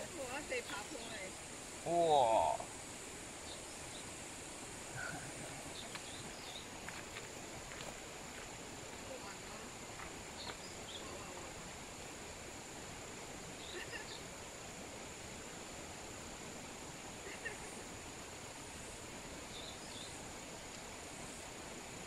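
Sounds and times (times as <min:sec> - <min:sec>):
high-pitched insect drone: 0:00.0 - 0:07.0
background hiss: 0:00.0 - 0:22.0.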